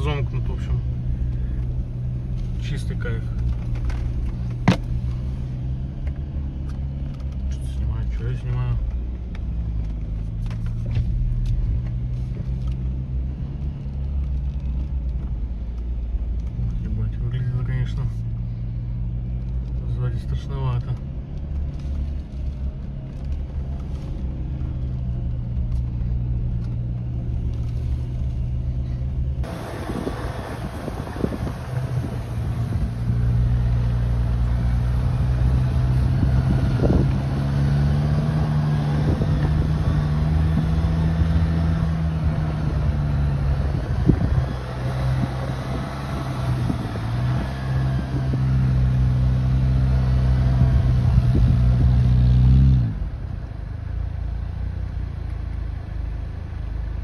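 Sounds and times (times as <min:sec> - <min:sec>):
suv engine running: 0:00.0 - 0:57.0
body and suspension knocks: 0:04.5 - 0:05.0.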